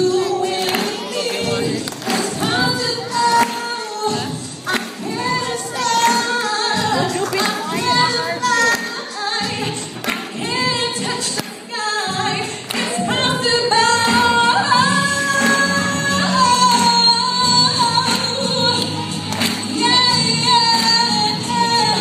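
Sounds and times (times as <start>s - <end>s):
woman singing into microphone: 0.0s - 22.0s.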